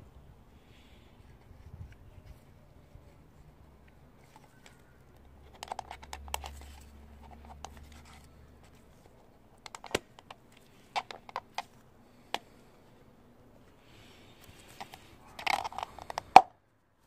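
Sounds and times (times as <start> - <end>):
plastic filter cap clicks and scrapes: 4.2 - 8.8, 9.6 - 11.7, 14.5 - 16.5.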